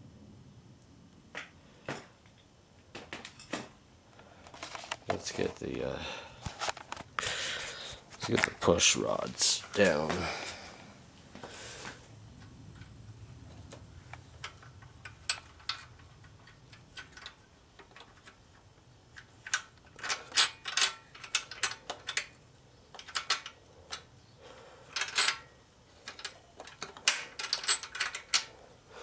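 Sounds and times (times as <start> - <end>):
metallic clicks of engine push rods: 14.4 - 24.1.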